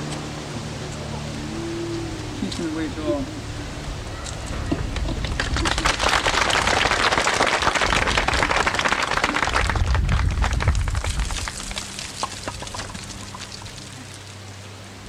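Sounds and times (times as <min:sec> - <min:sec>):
crowd applauding: 0:04.7 - 0:14.2.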